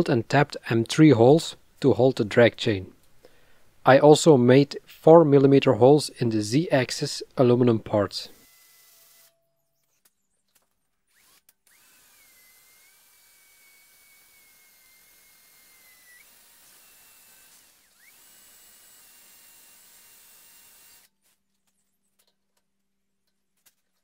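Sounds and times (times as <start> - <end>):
cordless drill whining: 8.4 - 9.4, 11.1 - 21.2.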